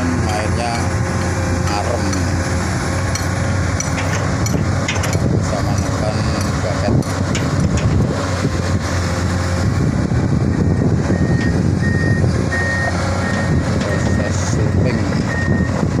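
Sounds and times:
excavator diesel engine humming: 0:00.0 - 0:16.0
warning alarm beeping: 0:10.5 - 0:15.8.

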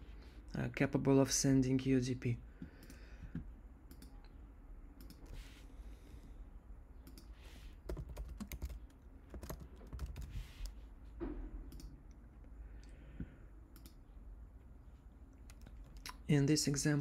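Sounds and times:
computer keyboard typing: 0:07.0 - 0:10.7, 0:15.4 - 0:16.1.

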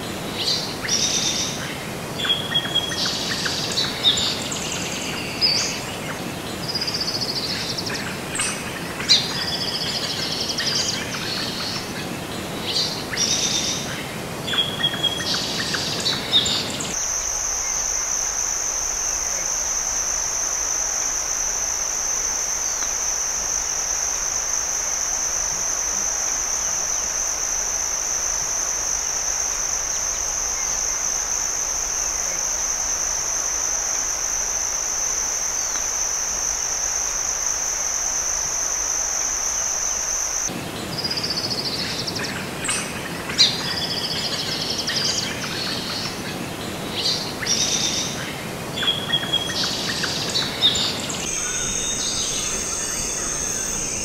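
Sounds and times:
high-pitched insect drone: 0:14.5 - 0:41.8, 0:47.0 - 0:54.0
birds chirping: 0:48.8 - 0:54.0.

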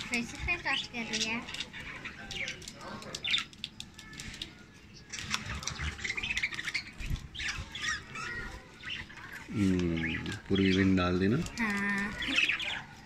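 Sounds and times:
budgerigars chattering and squawking: 0:05.2 - 0:13.0.

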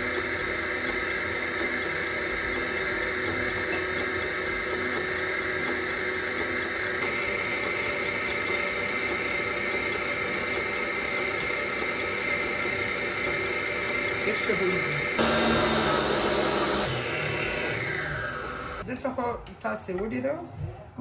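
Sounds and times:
stand mixer motor whine: 0:00.0 - 0:18.8
metal spoon clinking bowl: 0:03.6 - 0:04.0, 0:07.4 - 0:09.4, 0:11.4 - 0:11.7.

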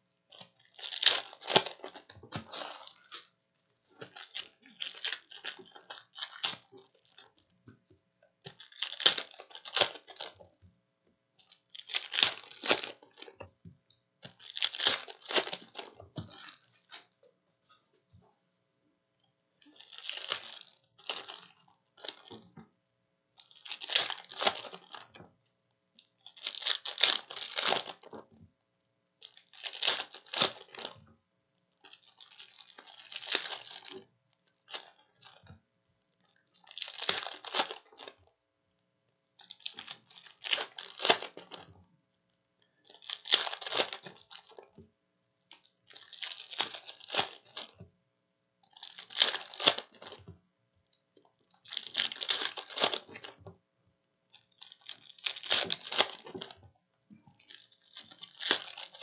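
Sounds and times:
plastic wrappers tearing and crinkling: 0:00.3 - 0:03.3, 0:04.0 - 0:07.3, 0:08.5 - 0:10.3, 0:11.4 - 0:13.4, 0:14.2 - 0:17.1, 0:19.6 - 0:22.6, 0:23.4 - 0:25.1, 0:26.1 - 0:28.1, 0:29.2 - 0:31.0, 0:31.8 - 0:34.0, 0:36.4 - 0:38.2, 0:39.4 - 0:41.7, 0:42.8 - 0:44.6, 0:45.5 - 0:47.8, 0:48.6 - 0:50.3, 0:51.4 - 0:53.4, 0:54.3 - 0:56.6, 0:57.4 - 0:59.0.

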